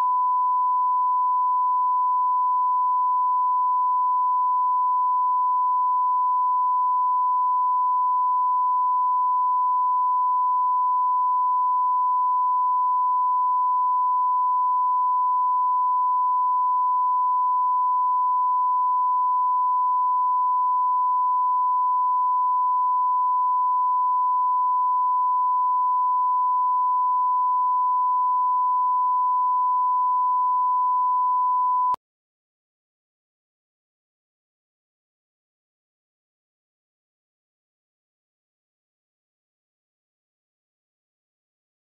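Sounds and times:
steady test tone beep: 0.0 - 32.0.

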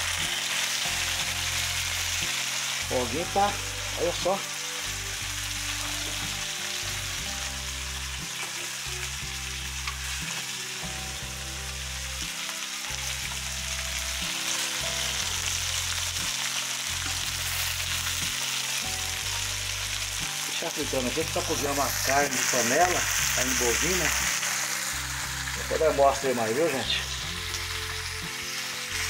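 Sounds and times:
fish sizzling in oil: 0.0 - 29.0.

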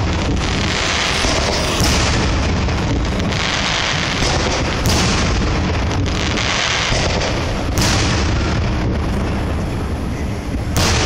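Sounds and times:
firework shell booming: 0.0 - 11.0
low rumbling of fireworks: 0.0 - 11.0.

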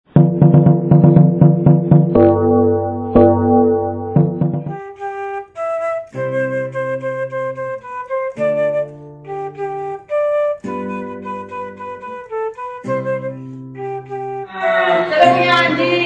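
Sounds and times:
light melody over held chords: 2.1 - 6.2.

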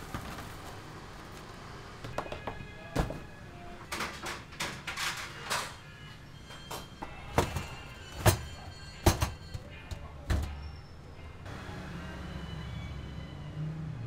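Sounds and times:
food stall clatter: 0.0 - 11.1.

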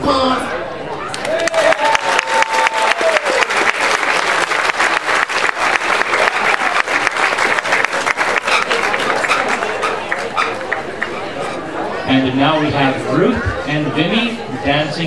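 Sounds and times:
audience applauding: 1.1 - 11.2.

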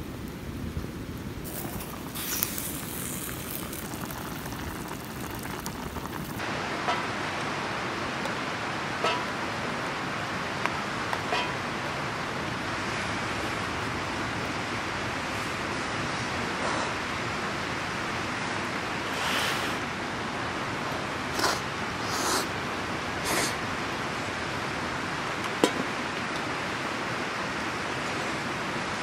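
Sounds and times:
campfire hissing: 0.1 - 8.8, 9.4 - 20.4, 21.1 - 23.8.

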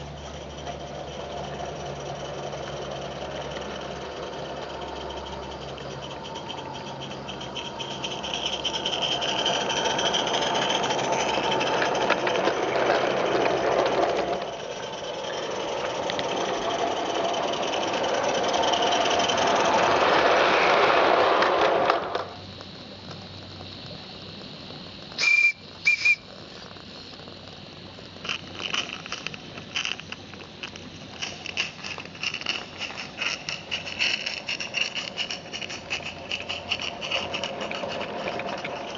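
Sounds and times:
steam locomotive rushing hiss: 0.0 - 22.5, 25.2 - 26.3
wheels clicking on track: 0.0 - 38.9
train whistle toots: 25.2 - 26.3.

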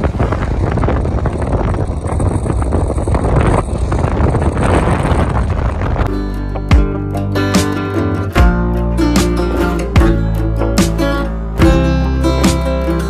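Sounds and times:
wind buffeting microphone: 0.0 - 7.1
road noise rumble: 0.0 - 13.0
acoustic guitar music: 6.1 - 13.0.

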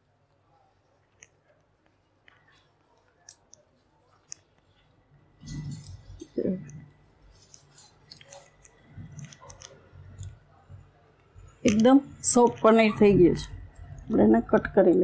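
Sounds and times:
cloth rustling: 7.2 - 9.2.

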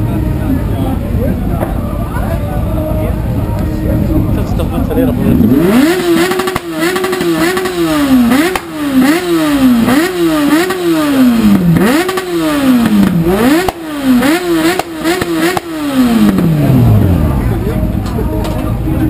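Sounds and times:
sport bike engine revving: 5.0 - 17.7.

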